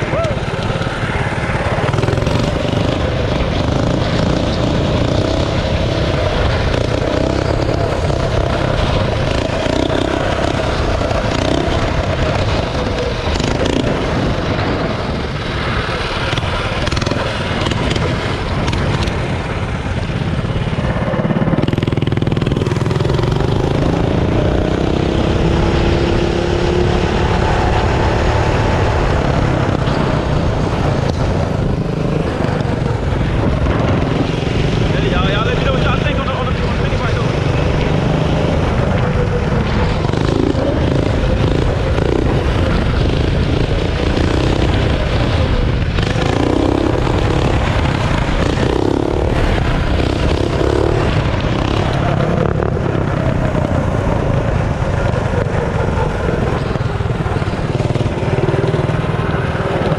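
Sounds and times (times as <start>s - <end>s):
minibike engine running: 0.0s - 59.9s
wind noise: 0.0s - 59.9s.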